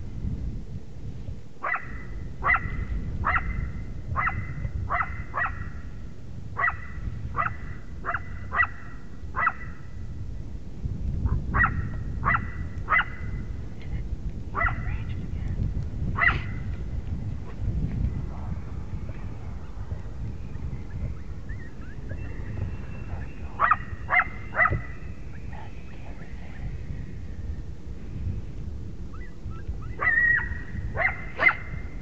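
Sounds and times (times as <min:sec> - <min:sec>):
wind on microphone: 0:00.0 - 0:32.0
coyote barking: 0:01.6 - 0:05.8, 0:06.6 - 0:09.8, 0:11.3 - 0:13.3, 0:14.6 - 0:14.9, 0:20.9 - 0:25.0, 0:29.1 - 0:31.8.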